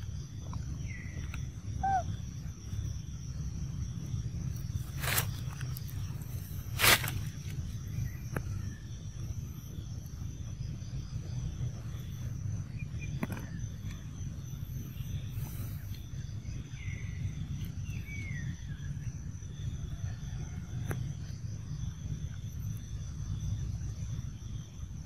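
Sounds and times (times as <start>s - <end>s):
low rumble: 0.0s - 20.3s
short chirping calls: 0.8s - 2.8s.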